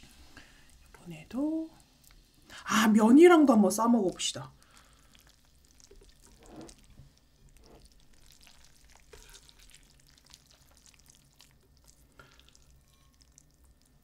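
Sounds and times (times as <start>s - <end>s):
chewing: 4.6s - 14.0s
wet food handling: 4.6s - 14.0s.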